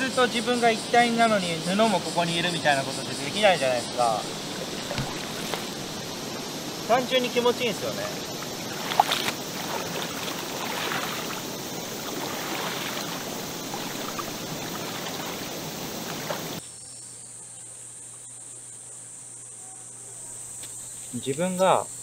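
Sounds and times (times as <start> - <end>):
river water running and lapping: 0.0 - 16.6
high-pitched insect chirring: 0.0 - 22.0.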